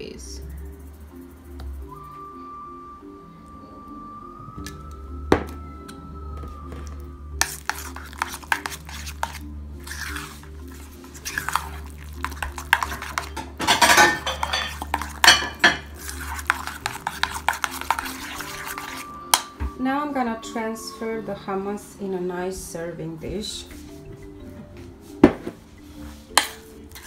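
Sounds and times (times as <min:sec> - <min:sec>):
background music: 0:00.0 - 0:27.0
spoon scraping metal bowl: 0:07.4 - 0:19.4, 0:26.3 - 0:27.0
spoon clinking against bowl: 0:11.2 - 0:19.5.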